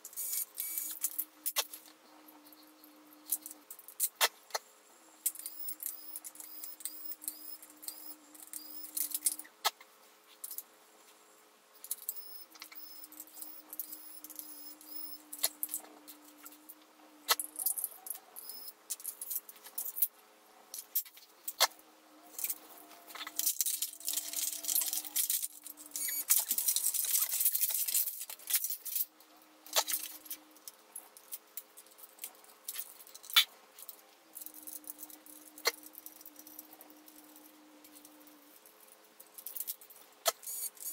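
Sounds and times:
small screws clattering: 5.2 - 9.5, 20.7 - 29.1, 29.7 - 40.9.

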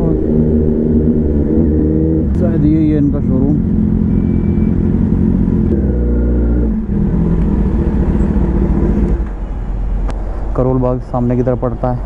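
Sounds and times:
motorcycle engine at low revs: 0.0 - 9.3
other motorcycle engines running: 0.0 - 9.4.

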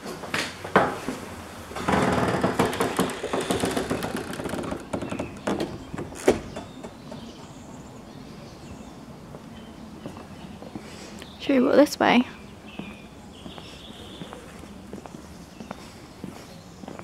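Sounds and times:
faint outdoor background: 0.0 - 17.0
footsteps on brick path: 12.7 - 17.0.

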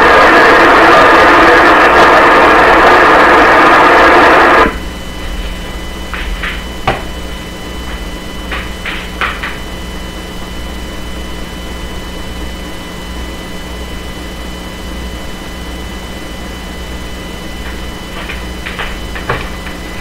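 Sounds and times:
radio hiss and electrical hum: 0.0 - 20.0.

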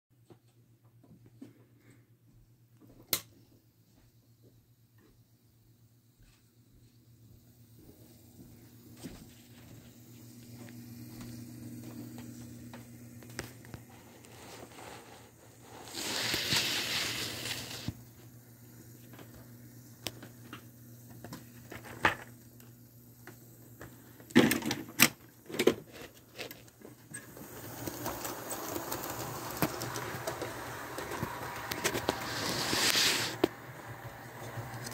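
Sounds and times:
model train motor hum: 14.1 - 19.4, 27.1 - 34.9
wheels clicking over rail joints: 27.2 - 32.4.

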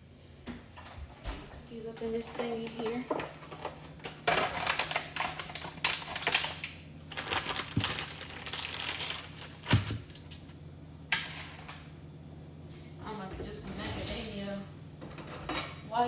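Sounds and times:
aluminium foil crinkling: 2.1 - 10.6.

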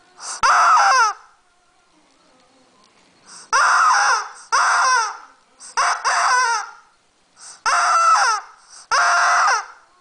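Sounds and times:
rubber chicken toy squawking: 0.2 - 1.3, 3.3 - 9.9.

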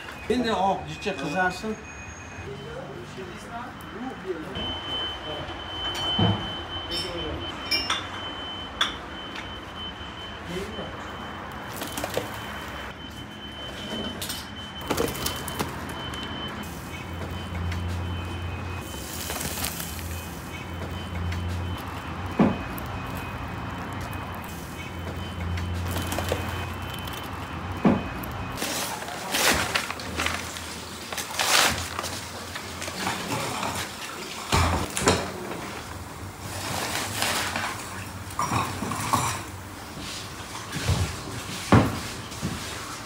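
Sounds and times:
paper crackling and tearing: 18.9 - 20.2, 28.6 - 33.0.

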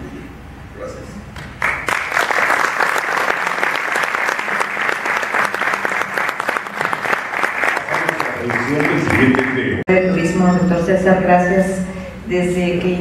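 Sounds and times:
crowd applauding: 1.4 - 9.8.

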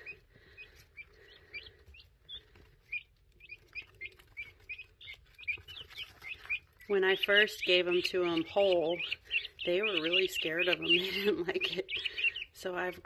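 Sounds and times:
young birds peeping: 0.0 - 13.0.

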